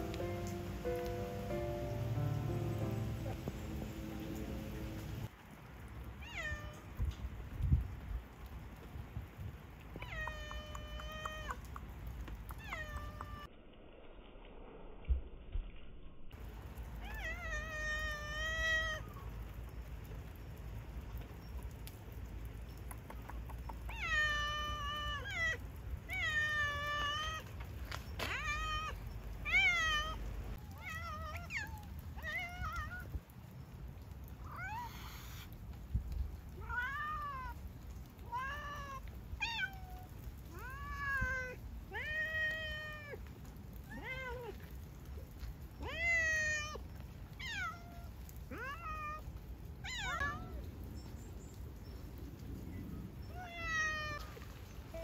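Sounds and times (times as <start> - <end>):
cat meowing: 23.9 - 27.5, 28.2 - 33.1, 43.8 - 44.7, 45.8 - 46.8, 47.4 - 50.6.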